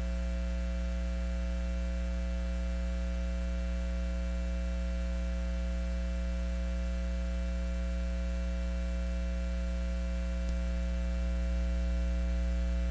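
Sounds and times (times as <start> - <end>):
electrical mains hum: 0.0 - 12.9
faint click: 10.4 - 10.7.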